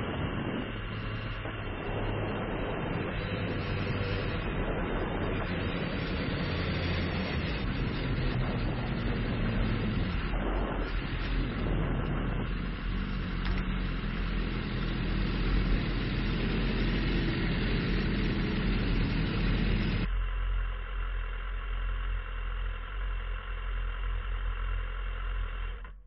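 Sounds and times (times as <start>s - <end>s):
wind on microphone: 0.0s - 20.1s
motorcycle engine running: 0.0s - 26.0s.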